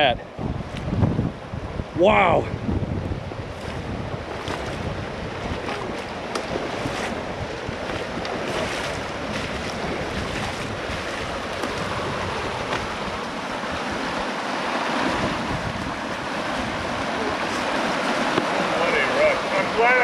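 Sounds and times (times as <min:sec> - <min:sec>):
water rushing: 0:00.0 - 0:20.0
wind buffeting microphone: 0:00.0 - 0:20.0.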